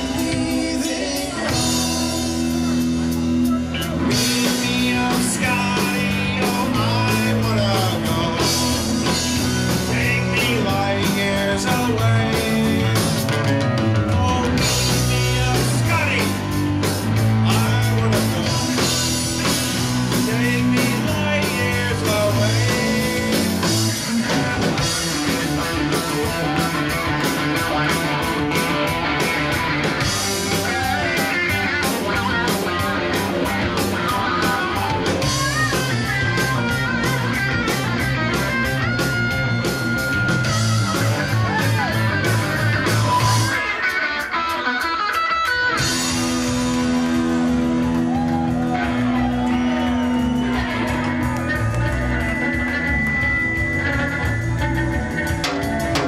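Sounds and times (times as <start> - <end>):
man singing into a microphone: 0.0 - 2.7, 3.7 - 13.2, 13.9 - 16.4, 17.3 - 19.0, 20.1 - 24.9
electric guitar lead with bending notes: 0.0 - 56.0
live rock band playing: 0.0 - 56.0.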